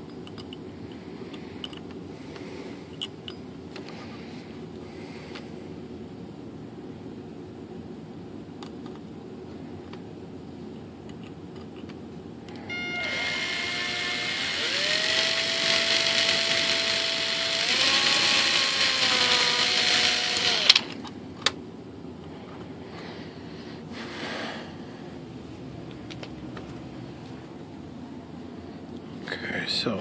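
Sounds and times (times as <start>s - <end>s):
electric drill whining: 12.6s - 21.0s.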